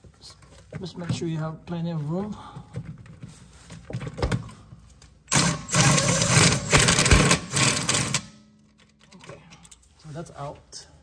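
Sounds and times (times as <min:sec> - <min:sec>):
power wrench spinning bolt: 0:05.3 - 0:08.3.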